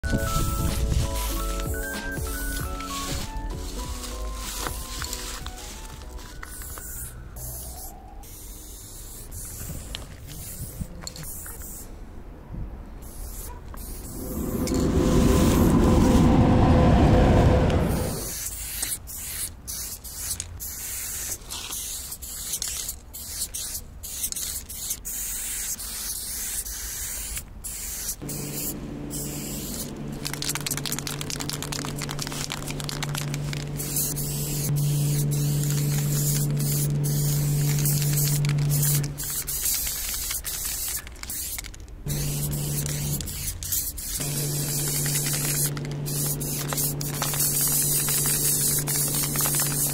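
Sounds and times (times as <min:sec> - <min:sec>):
spray can hissing: 0:00.0 - 0:11.8, 0:13.0 - 0:16.4, 0:18.0 - 0:49.9
steady low hum: 0:28.2 - 0:39.4, 0:42.0 - 0:49.9.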